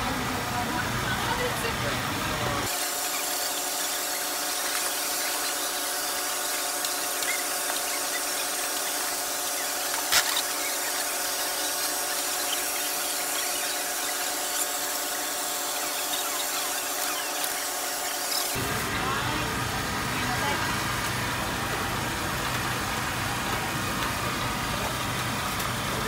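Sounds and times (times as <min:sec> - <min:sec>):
steady hum: 0:00.0 - 0:26.0
batter sizzling on griddle: 0:02.6 - 0:18.6.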